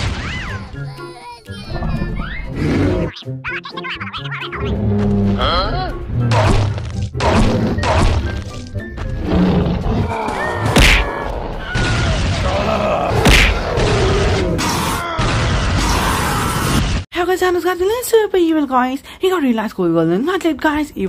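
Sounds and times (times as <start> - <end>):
cartoon background music: 0.0 - 12.4
loud whacks: 6.3 - 8.3, 10.6 - 11.2, 13.1 - 14.0.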